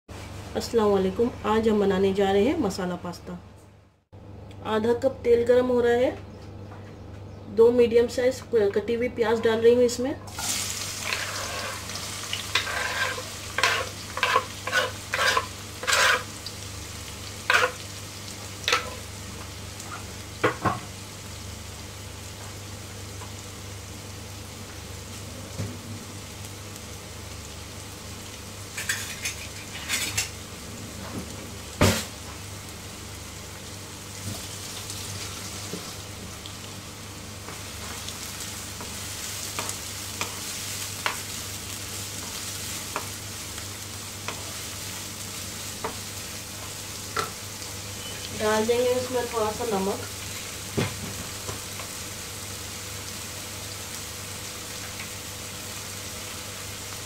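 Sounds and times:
onions sizzling in a frying pan: 0:10.0 - 0:57.0
wooden spatula stirring onions: 0:10.9 - 0:16.3.

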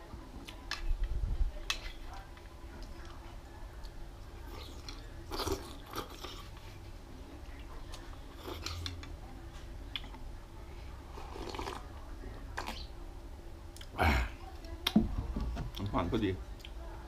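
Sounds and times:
person chewing: 0:04.4 - 0:06.7, 0:07.9 - 0:09.0, 0:11.1 - 0:11.8
slurping soup: 0:11.1 - 0:11.9.

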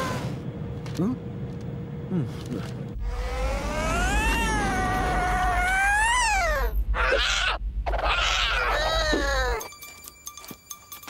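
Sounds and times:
steady low rumble: 0:00.4 - 0:09.6
cartoon cat yowling: 0:03.8 - 0:09.6.

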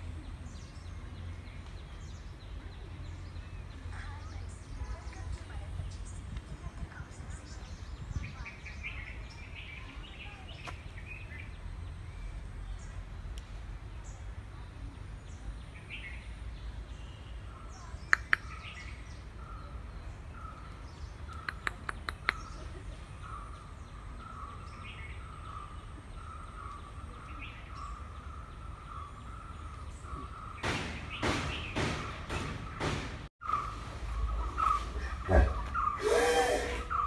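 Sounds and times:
birds chirping: 0:00.0 - 0:37.0
sharp clicks: 0:18.1 - 0:18.5
loud noisy bursts: 0:36.0 - 0:37.0.

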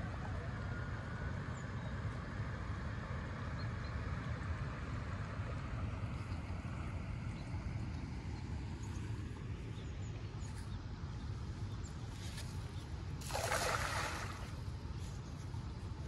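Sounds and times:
wind: 0:00.0 - 0:16.0
cast net splashing on water: 0:13.2 - 0:14.7
stream flowing: 0:13.2 - 0:14.8.

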